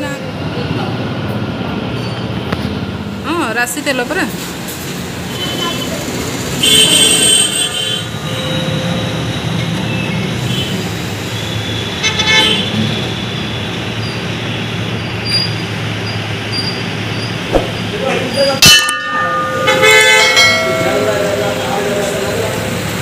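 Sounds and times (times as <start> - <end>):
vehicle horns tooting: 6.6 - 8.8.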